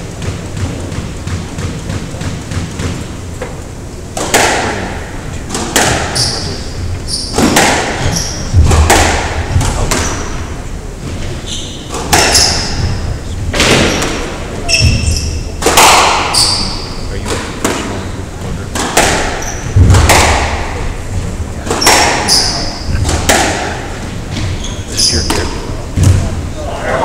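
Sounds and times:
squash ball hit by rackets: 0.0 - 3.2, 4.2 - 6.6, 7.2 - 10.5, 11.8 - 18.1, 18.7 - 24.6, 25.2 - 26.4
shoes squeaking on wooden floor: 6.2 - 8.6, 11.0 - 13.1, 14.6 - 15.6, 16.3 - 17.2, 24.2 - 25.4.

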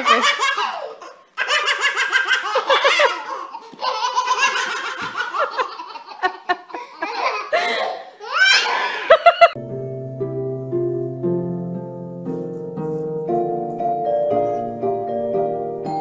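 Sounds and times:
babies laughing: 0.0 - 9.6.

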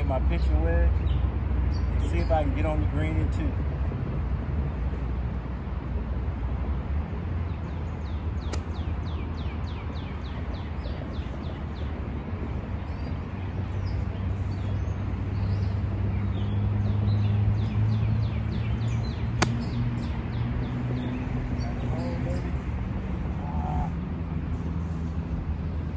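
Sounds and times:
low traffic drone: 0.0 - 25.9
golf club striking ball: 8.5 - 8.9, 19.4 - 19.8.

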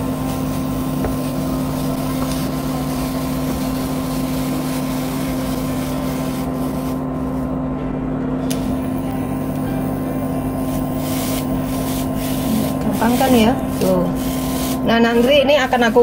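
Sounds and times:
kitchen fan humming: 0.0 - 16.0
spatula scraping frying pan: 11.0 - 16.0.

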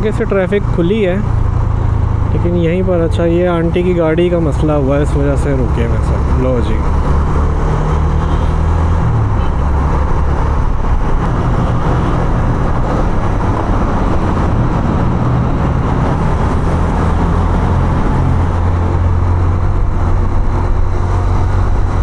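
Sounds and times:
road and wind noise: 0.0 - 22.0.

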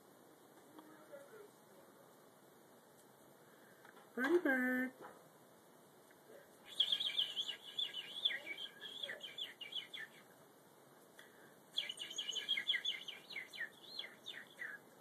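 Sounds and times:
budgerigar chattering: 6.7 - 10.2, 11.8 - 14.8.

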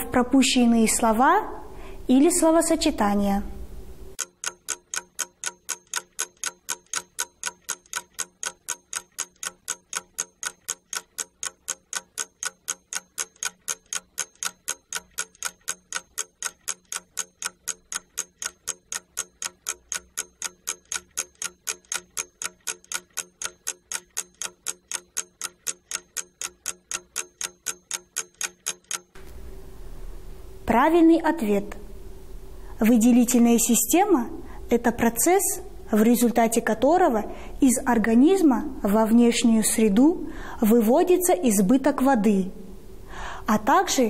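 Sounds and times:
clock ticking fast: 4.1 - 29.2.

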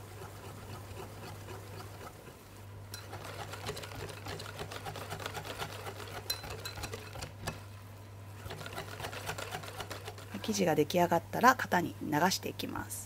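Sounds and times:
whisk ticking against glass bowl: 2.9 - 7.6, 8.4 - 10.3.

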